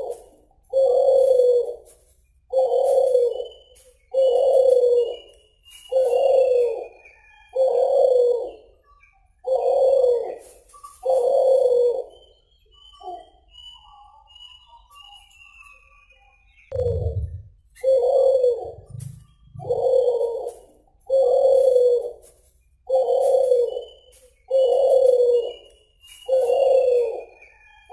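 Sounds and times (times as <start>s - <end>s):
dove cooing: 0.0s - 8.8s, 9.4s - 12.3s, 16.7s - 22.2s, 22.9s - 25.7s, 26.3s - 27.5s.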